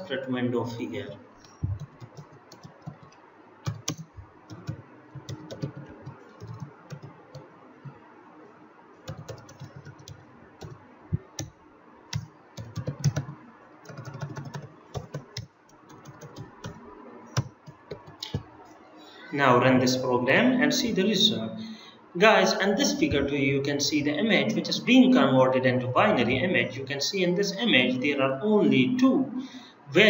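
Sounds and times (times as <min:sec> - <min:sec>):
computer keyboard typing: 0:01.4 - 0:07.5, 0:09.1 - 0:11.5, 0:12.1 - 0:18.5.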